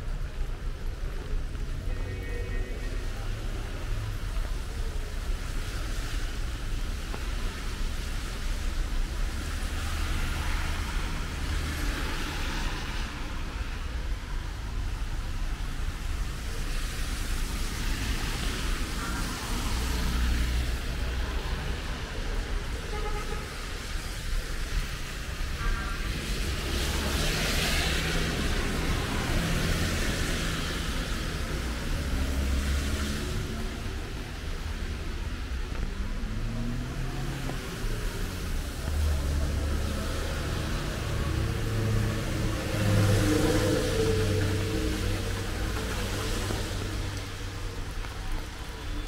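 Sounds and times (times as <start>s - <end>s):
heavy rain on wet street: 0.0s - 49.0s
tyres on wet road: 0.0s - 49.0s.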